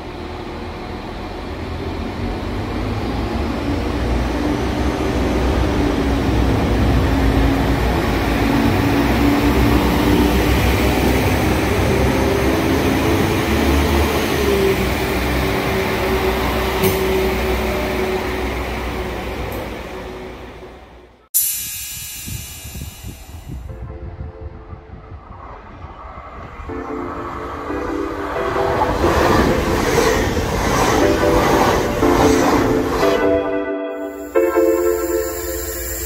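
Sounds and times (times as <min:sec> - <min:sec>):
diesel train engine droning: 0:00.0 - 0:24.1, 0:26.6 - 0:36.0.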